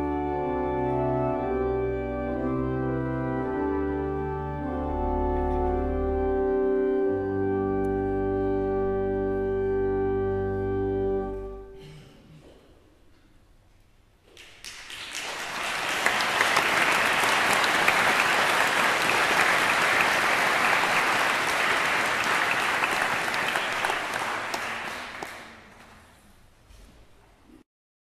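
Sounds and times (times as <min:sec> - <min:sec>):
crowd applauding: 0:14.4 - 0:26.1.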